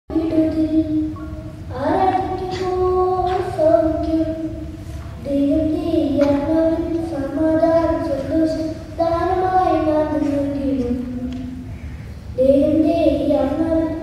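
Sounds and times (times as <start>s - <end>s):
boy singing into microphone: 0.1s - 11.7s, 12.4s - 14.0s
singer breathing: 11.6s - 12.3s.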